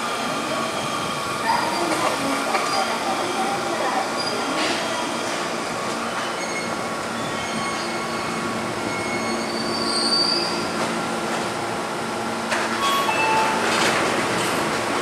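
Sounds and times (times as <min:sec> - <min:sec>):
brake squeal: 0:08.9 - 0:10.6.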